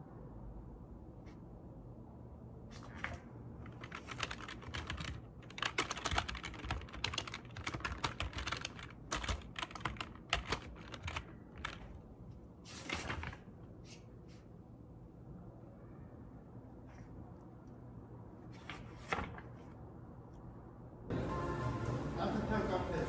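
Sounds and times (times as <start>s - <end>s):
typing on computer keyboard: 3.6s - 12.0s.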